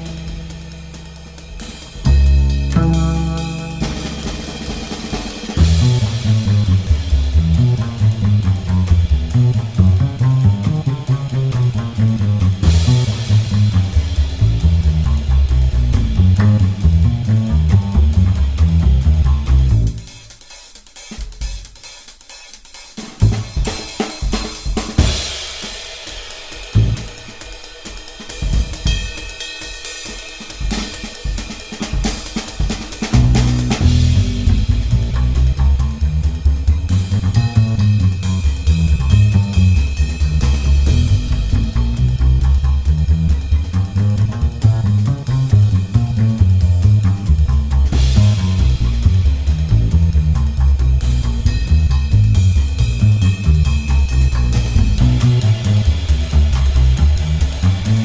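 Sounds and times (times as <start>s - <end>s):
rock music with drums and guitar: 0.0s - 7.4s
bass line: 0.0s - 20.1s, 23.2s - 23.7s, 26.8s - 27.2s, 33.1s - 58.0s
drum kit beat: 0.0s - 58.0s.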